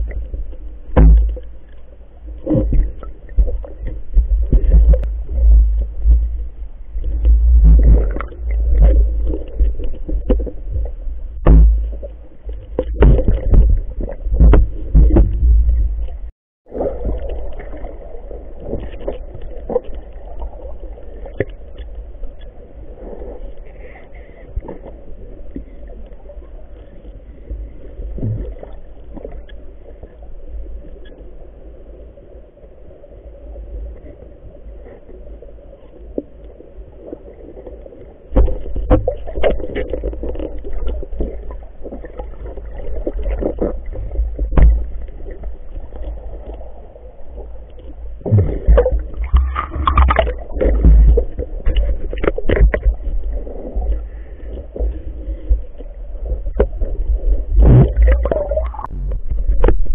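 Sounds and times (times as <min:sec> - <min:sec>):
muffled underwater rumble: 0:00.0 - 0:59.9
sharp underwater clicks and knocks: 0:00.9 - 0:01.8, 0:07.0 - 0:16.3, 0:38.3 - 0:41.4, 0:43.1 - 0:45.1, 0:48.3 - 0:53.1, 0:57.5 - 0:59.9.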